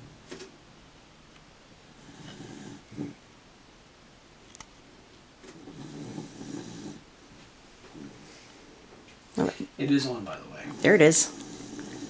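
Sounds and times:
rough snore-like breaths: 2.0s - 3.2s, 5.5s - 7.0s, 10.6s - 12.0s.

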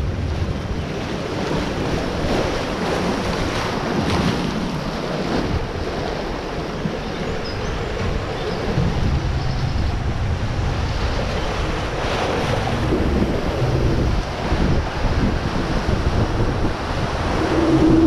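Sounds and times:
whitewater rushing: 7.8s - 18.0s.

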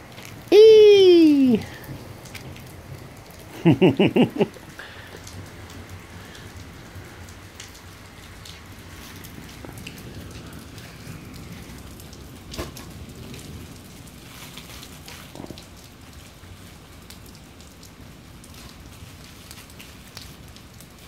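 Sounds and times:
heavy storm rain: 0.0s - 21.0s
person laughing: 0.5s - 1.7s, 3.5s - 4.8s.

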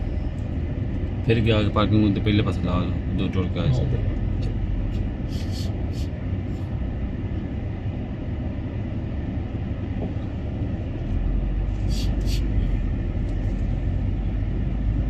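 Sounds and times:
car engine and tyre rumble: 0.0s - 15.0s
short high hisses: 11.9s - 12.5s.

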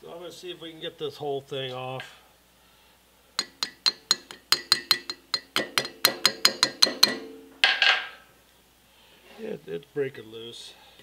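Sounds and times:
small hammer tapping metal: 3.4s - 8.1s.

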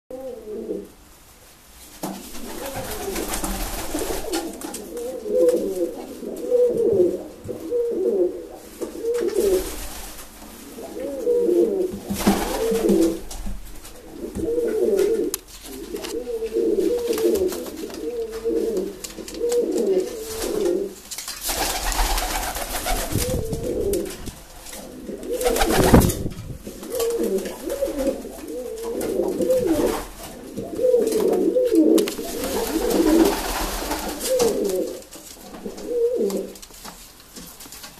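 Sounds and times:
pigeon cooing: 0.1s - 1.0s, 2.3s - 9.8s, 10.6s - 13.3s, 14.0s - 21.0s, 21.8s - 36.6s.

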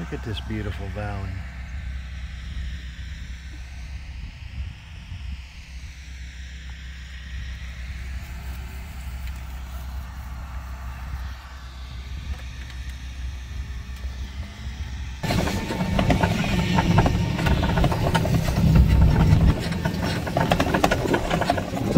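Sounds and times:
vehicle engine running: 0.0s - 21.9s
vehicle rattling and jolting: 15.2s - 21.9s.

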